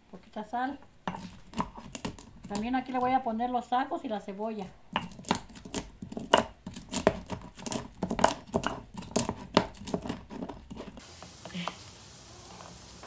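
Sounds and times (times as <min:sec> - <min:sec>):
stone pestle grinding on stone: 0:01.0 - 0:02.7, 0:04.9 - 0:11.0.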